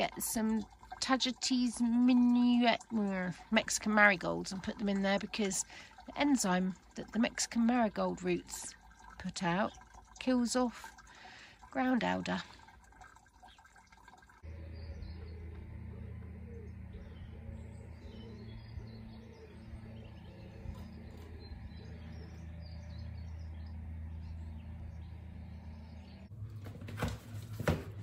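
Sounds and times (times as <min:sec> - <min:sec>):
birds chirping: 0:00.0 - 0:26.6
steady low hum: 0:14.3 - 0:26.6.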